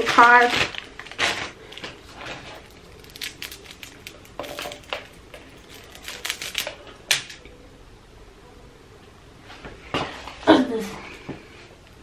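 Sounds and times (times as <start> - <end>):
soft handling: 1.2 - 6.8
metal clasps clicking and clinking: 2.6 - 6.7.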